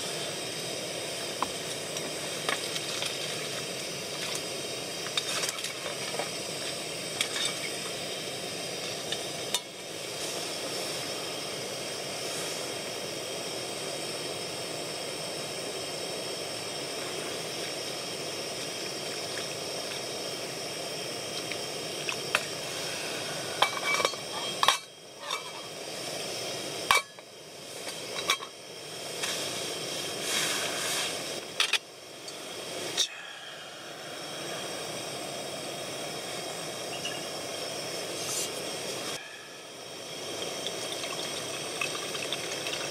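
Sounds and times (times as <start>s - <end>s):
broth simmering: 0.0s - 42.9s
gas stove burner hissing: 0.0s - 42.9s
utensils clinking on metal pot: 7.2s - 7.8s, 23.6s - 25.7s, 26.9s - 27.2s, 28.1s - 28.6s.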